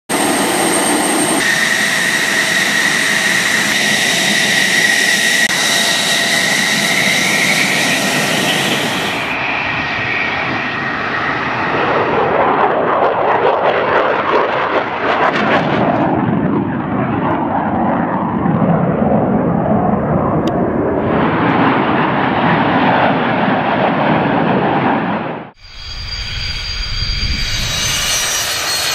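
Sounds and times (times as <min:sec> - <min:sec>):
fighter jets flying past: 0:00.1 - 0:28.9
jet engine whine: 0:00.1 - 0:28.9.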